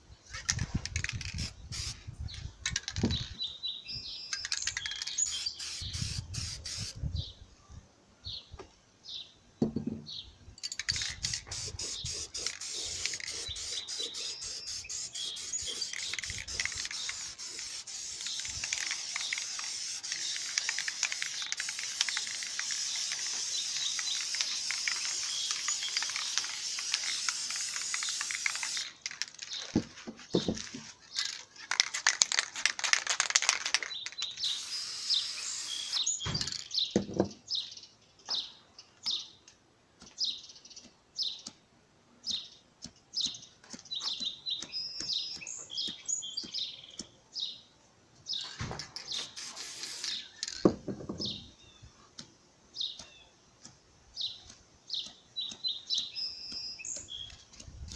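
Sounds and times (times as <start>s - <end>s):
aerosol spray can hissing: 1.4s - 2.0s, 5.2s - 7.0s, 11.0s - 29.1s, 33.8s - 36.0s, 49.1s - 50.4s.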